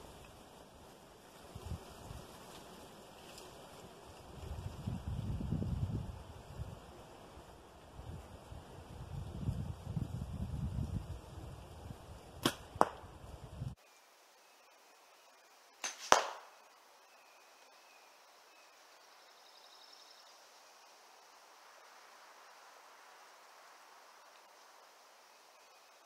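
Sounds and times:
arrow striking foam target: 12.4 - 13.0, 15.8 - 16.5
sharp loud crack: 15.8 - 16.5.

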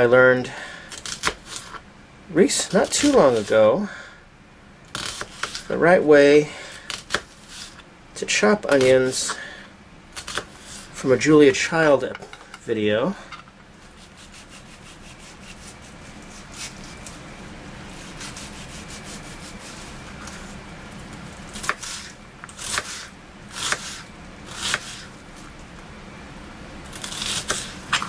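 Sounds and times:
knife slicing onion: 0.9 - 1.8, 2.5 - 3.6, 4.9 - 5.7, 6.7 - 7.8, 10.2 - 11.0, 13.8 - 17.1, 17.9 - 20.6, 21.5 - 25.2, 26.9 - 28.0.

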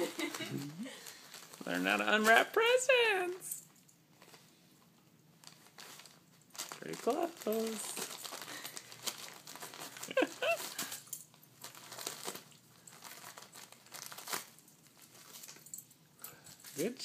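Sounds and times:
wrapping paper crinkling and tearing: 0.0 - 2.9, 5.4 - 15.7.

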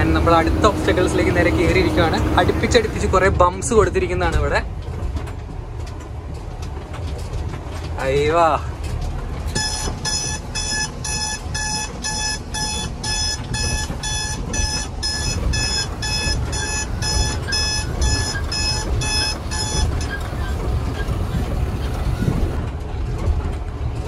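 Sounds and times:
truck engine and road rumble: 0.0 - 24.0
electronic warning buzzer beeping: 9.6 - 20.5.

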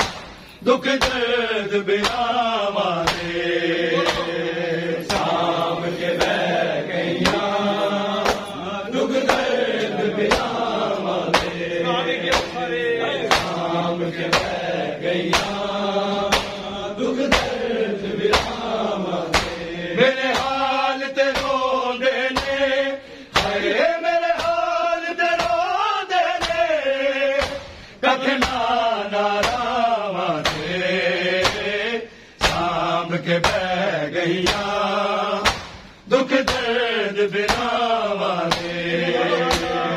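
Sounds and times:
hands slapping chests: 0.0 - 1.3, 2.0 - 2.4, 3.0 - 11.6, 12.2 - 12.6, 13.2 - 17.6, 18.3 - 19.7, 20.3 - 20.7, 21.3 - 21.6, 22.3 - 22.6, 23.4 - 23.6, 24.3 - 24.6, 25.4 - 25.6, 26.4 - 26.7, 27.4 - 27.8, 28.4 - 28.8, 29.4 - 29.8, 30.4 - 30.8, 31.4 - 31.8, 32.4 - 32.8, 33.4 - 33.7, 34.4 - 34.8, 35.4 - 36.8, 37.5 - 37.8, 38.4 - 38.8, 39.4 - 39.8
man chanting: 0.6 - 6.2, 10.9 - 14.2.

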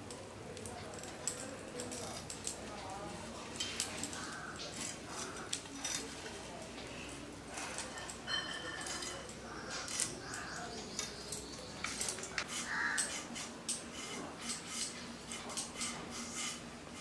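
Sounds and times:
kitchen utensils clinking: 7.0 - 16.6.

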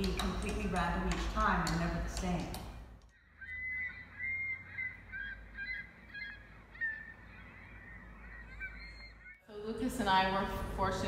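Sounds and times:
gull calls from speakers: 3.2 - 9.4.

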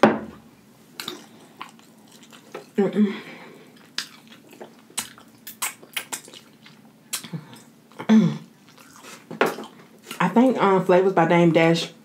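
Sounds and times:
crunching of crisp fried chicken: 1.0 - 2.8, 3.7 - 7.8, 8.5 - 10.2.

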